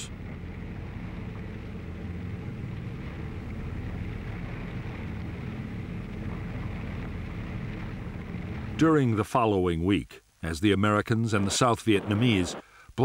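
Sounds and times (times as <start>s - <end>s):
boat engine drone: 0.0s - 9.1s, 11.3s - 12.8s
water noise: 0.0s - 9.5s, 10.8s - 12.6s
wind: 0.0s - 13.0s.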